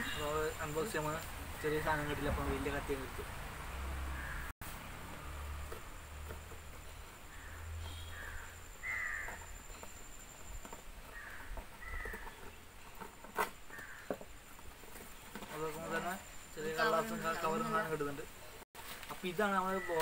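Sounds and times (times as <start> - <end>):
crows cawing: 4.1 - 4.5, 7.3 - 9.5, 11.1 - 12.3, 13.7 - 14.2.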